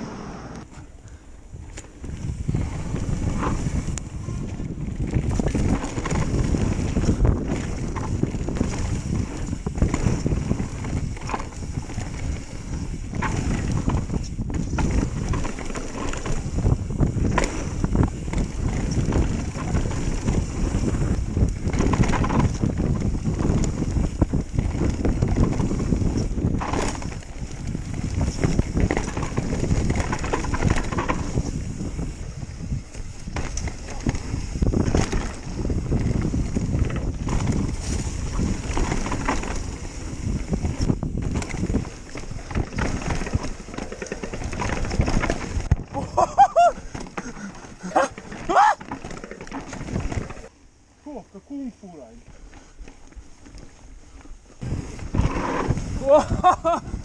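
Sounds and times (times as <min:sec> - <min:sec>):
bike rattling over bumps: 0:00.6 - 0:51.1, 0:52.2 - 0:57.0
wind buffeting microphone: 0:00.7 - 0:50.8, 0:52.1 - 0:57.0
tyres rolling over dirt: 0:01.7 - 0:50.9, 0:52.0 - 0:57.0.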